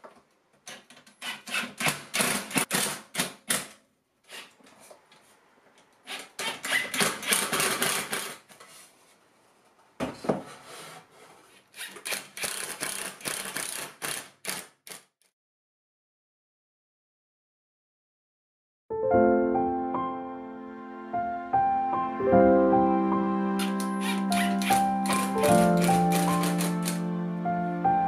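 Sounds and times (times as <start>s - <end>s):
cordless drill driving screws: 1.1s - 3.6s, 6.1s - 8.4s, 11.8s - 15.1s, 23.6s - 27.0s.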